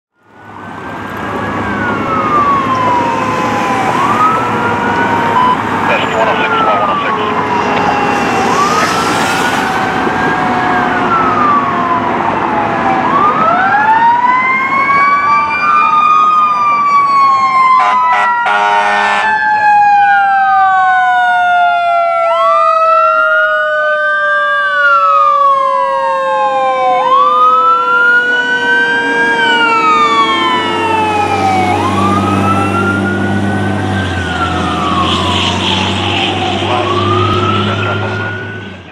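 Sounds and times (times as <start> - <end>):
electronic siren wailing: 0.2 - 38.9
truck engine rumble: 0.3 - 17.4, 26.7 - 38.9
loud horn blasts: 17.8 - 19.3.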